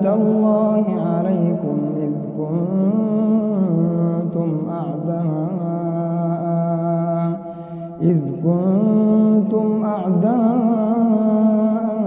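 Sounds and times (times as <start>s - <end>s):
man reciting melodically: 0.0s - 12.0s.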